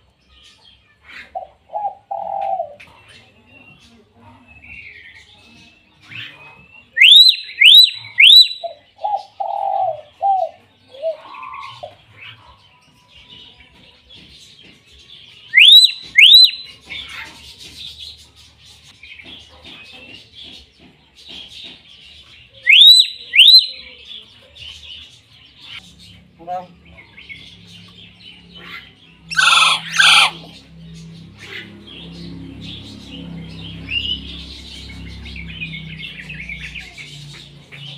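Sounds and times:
bird soft low notes and chatter: 0.0s - 37.9s
bird rising whistles: 22.7s - 23.7s.

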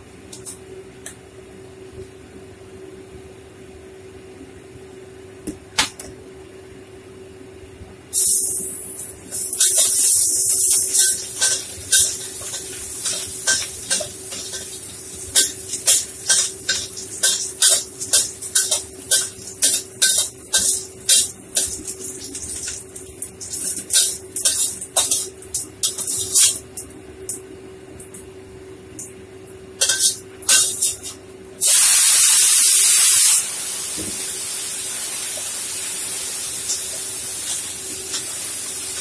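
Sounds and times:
oil sizzling in a wok: 8.1s - 26.8s, 29.8s - 39.0s.

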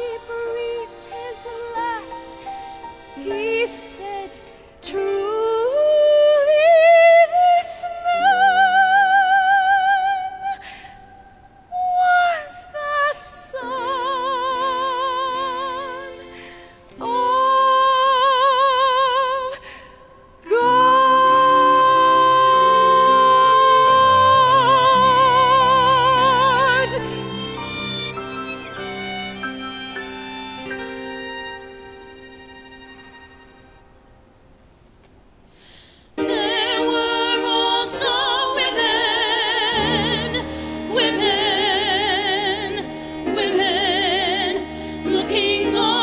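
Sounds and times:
woman singing with vibrato: 0.0s - 2.5s, 3.2s - 28.1s, 36.2s - 46.0s
soft instrumental accompaniment: 0.0s - 9.0s, 20.5s - 34.3s.

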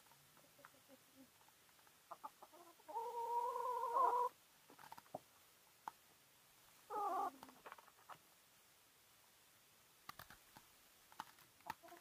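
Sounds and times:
chickens clucking: 0.3s - 1.4s, 2.0s - 4.4s, 6.9s - 8.2s, 11.6s - 12.0s
hen calling: 2.1s - 4.4s, 6.9s - 7.5s.

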